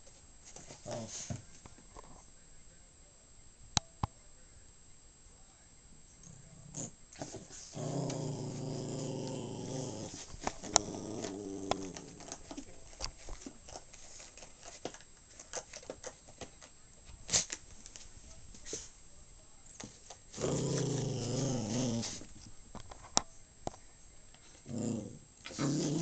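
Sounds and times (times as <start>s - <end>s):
small dog growling: 0.8s - 1.3s, 6.2s - 12.5s, 20.3s - 22.4s, 24.5s - 26.0s.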